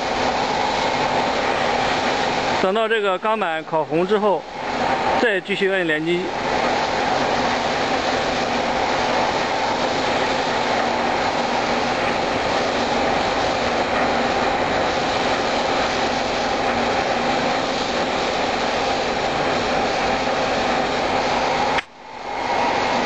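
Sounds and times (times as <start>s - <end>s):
cutting torch hissing: 0.0s - 23.0s.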